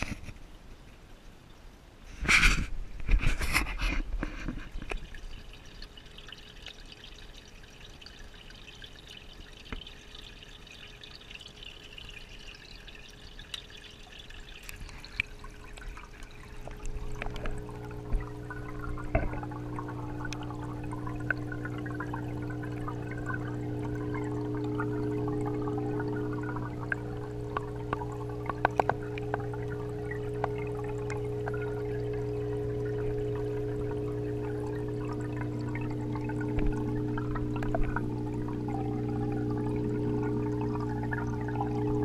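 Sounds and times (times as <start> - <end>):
aquarium water trickling: 0.0 - 42.0
steady low hum: 15.5 - 42.0.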